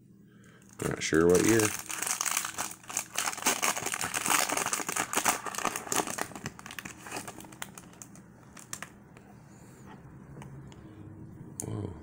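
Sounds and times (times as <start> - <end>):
foil wrapper crinkling: 0.7 - 9.0.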